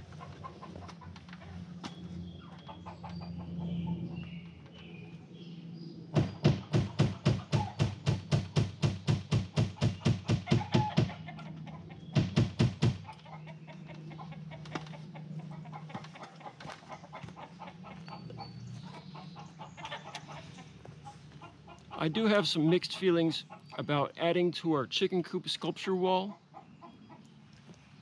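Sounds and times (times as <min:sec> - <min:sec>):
hens clucking softly: 0:00.0 - 0:01.8, 0:02.4 - 0:04.2, 0:10.5 - 0:12.1, 0:13.0 - 0:23.9, 0:26.2 - 0:27.8
knocking on wooden wall: 0:06.2 - 0:11.2, 0:12.2 - 0:13.1.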